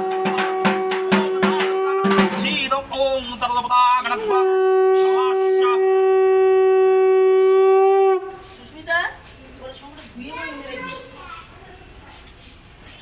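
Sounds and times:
conch shell blowing: 0.0s - 2.8s, 4.0s - 8.6s.

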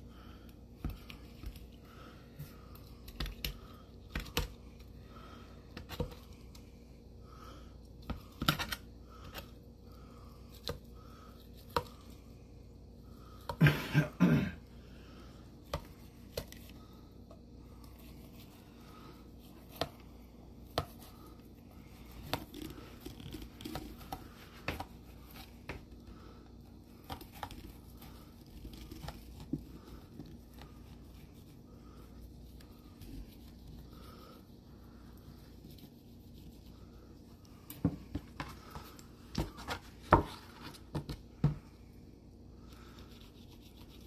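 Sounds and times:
cough-like burst: 13.6s - 14.6s.

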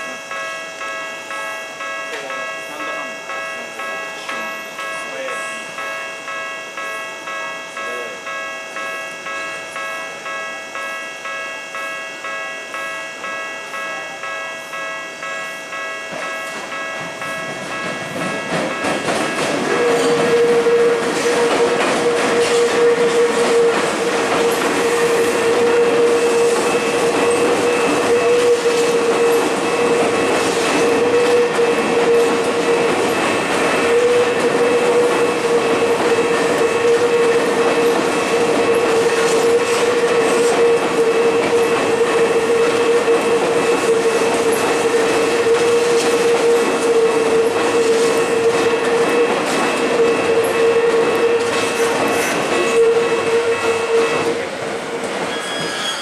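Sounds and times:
steady high tone: 0.0s - 54.6s
train wheels clacking over rails: 16.1s - 56.0s.

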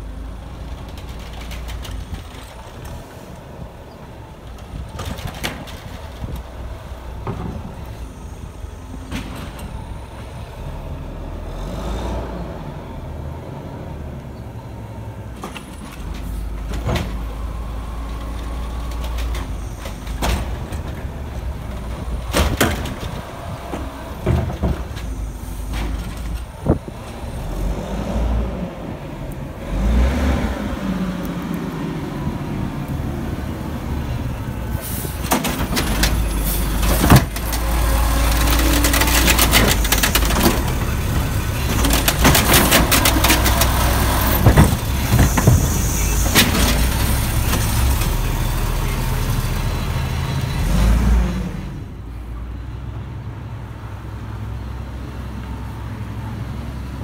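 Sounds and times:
garbage truck engine revving: 16.0s - 52.0s
truck knocks: 21.8s - 26.9s, 35.0s - 48.2s.

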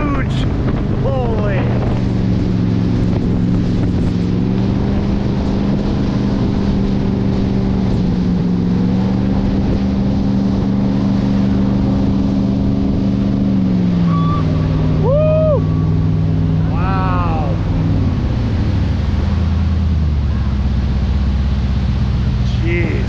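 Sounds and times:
jet boat engine running: 0.0s - 23.0s
rushing water: 0.0s - 23.0s
wind: 0.0s - 23.0s.

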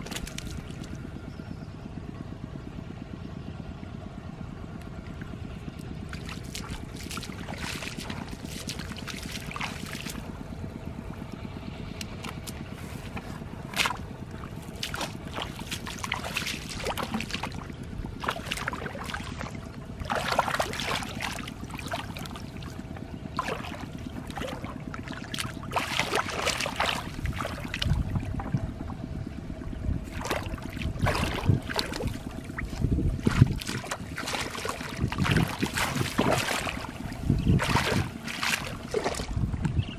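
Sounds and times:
water splashing and sloshing: 0.0s - 1.2s, 4.6s - 39.9s
faint steady hum: 0.0s - 39.9s.

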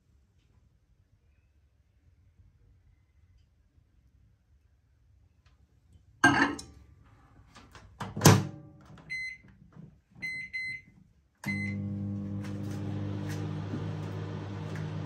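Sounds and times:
microwave oven humming: 11.4s - 15.0s
keypad beeps: 11.5s - 11.8s.

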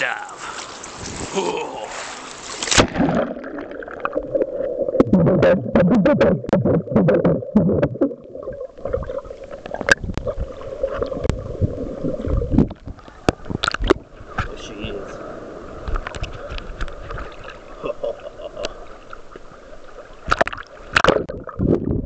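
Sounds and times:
surf hiss: 0.0s - 2.8s, 14.2s - 20.1s
underwater drone and rumble: 2.2s - 22.0s
camera splashing into water: 2.6s - 4.2s
underwater clicks and knocks: 3.9s - 11.4s, 12.2s - 14.5s, 15.9s - 17.5s, 20.3s - 21.8s.

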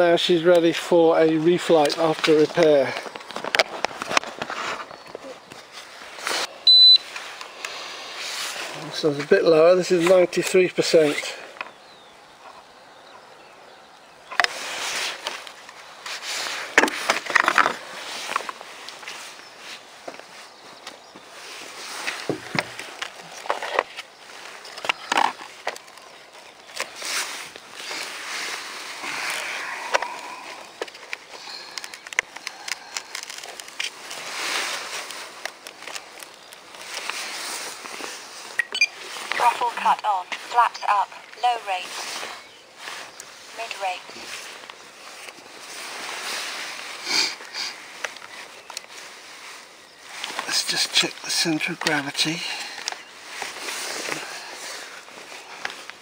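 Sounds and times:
rustling: 0.4s - 11.8s, 14.3s - 56.0s
light clicks and rustling: 30.8s - 38.2s, 47.4s - 49.1s.

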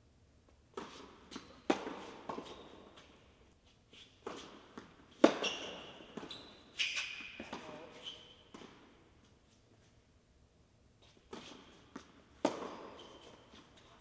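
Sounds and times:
tennis balls struck by rackets: 0.8s - 2.7s, 4.3s - 6.3s, 11.3s - 13.4s
tennis balls bouncing on court: 0.8s - 3.1s, 4.2s - 6.4s, 8.5s - 8.9s, 11.3s - 13.8s.

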